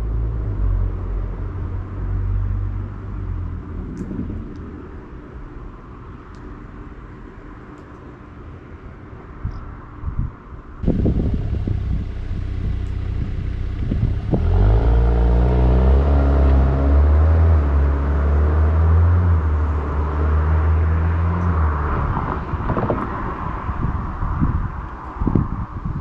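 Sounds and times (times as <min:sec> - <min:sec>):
car engine rumbling: 0:10.6 - 0:25.8.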